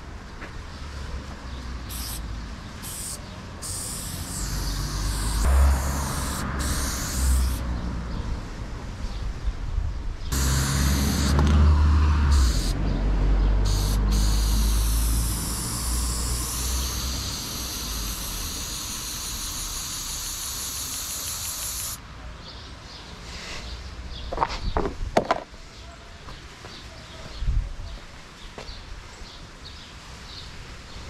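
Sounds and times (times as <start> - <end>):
spray paint can hissing: 1.9 - 7.7, 10.3 - 12.8, 13.6 - 22.0.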